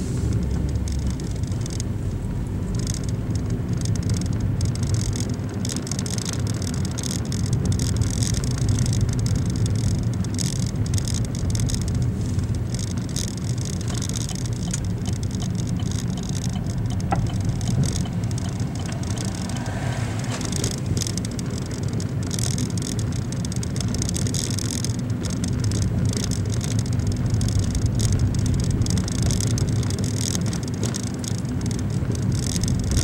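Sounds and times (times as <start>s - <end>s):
car engine and tyre rumble: 0.0s - 33.0s.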